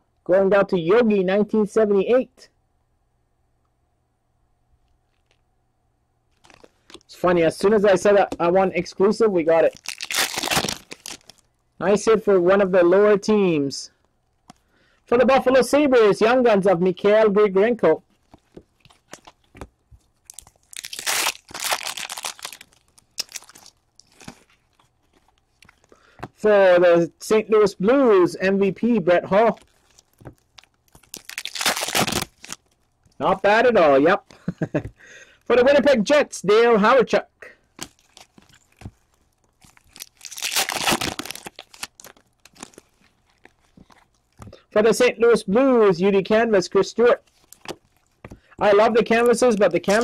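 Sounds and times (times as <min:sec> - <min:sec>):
wrapper tearing and crinkling: 0:06.3 - 0:07.1, 0:09.7 - 0:11.5, 0:18.1 - 0:25.9, 0:29.4 - 0:33.2, 0:37.6 - 0:44.4, 0:47.2 - 0:50.0
cards clicking and rustling: 0:06.4 - 0:07.1, 0:47.3 - 0:50.0.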